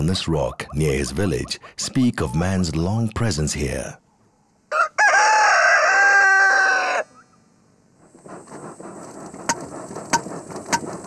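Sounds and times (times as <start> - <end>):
rooster crowing: 4.7 - 7.2.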